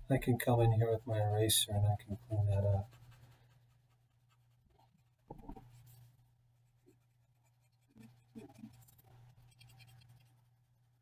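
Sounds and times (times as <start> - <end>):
eraser rubbing on paper: 0.7 - 4.8.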